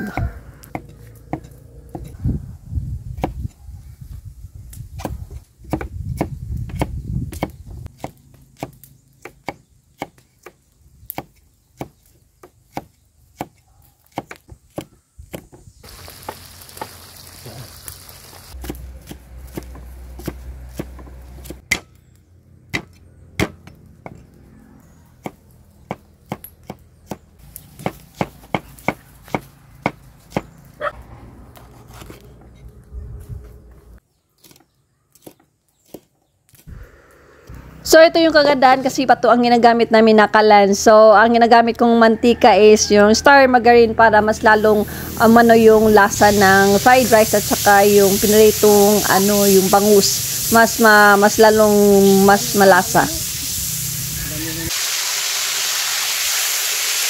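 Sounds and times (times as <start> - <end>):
knife chopping on wooden board: 0.0 - 2.2, 5.0 - 15.6, 18.6 - 21.9.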